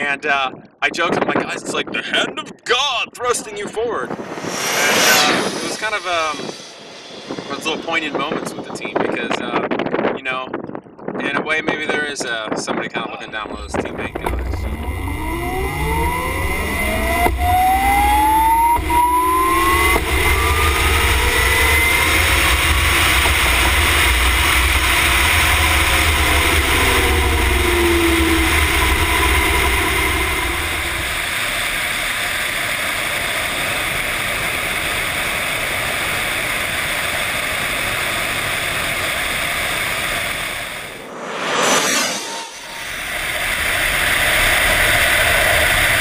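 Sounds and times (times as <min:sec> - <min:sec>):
wind rushing over microphone: 0:00.0 - 0:46.0
electric motor whine: 0:14.2 - 0:33.2.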